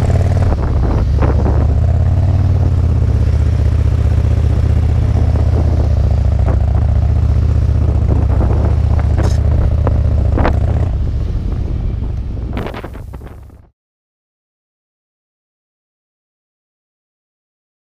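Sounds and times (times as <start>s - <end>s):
motorcycle engine rumble: 0.0s - 13.7s.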